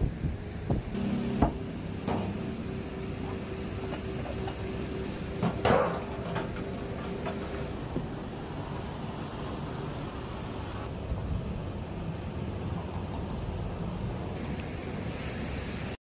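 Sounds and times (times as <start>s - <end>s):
steady hum: 0.0s - 12.8s.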